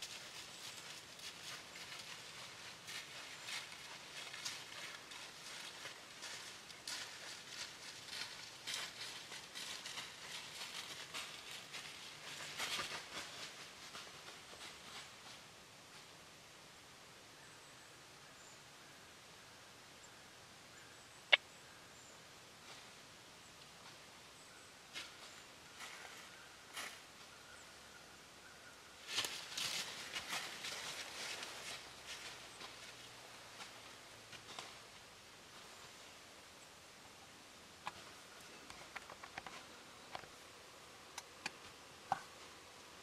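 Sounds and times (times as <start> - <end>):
deer footsteps in dry leaves: 0.0 - 16.1, 23.8 - 27.6, 29.0 - 36.6.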